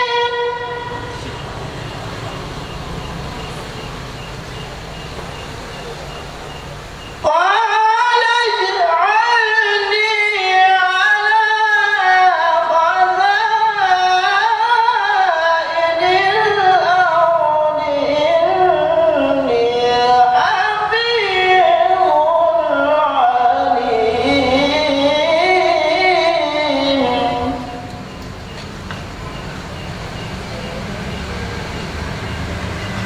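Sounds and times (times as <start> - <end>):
man chanting into a microphone: 0.0 - 1.5, 7.2 - 27.9.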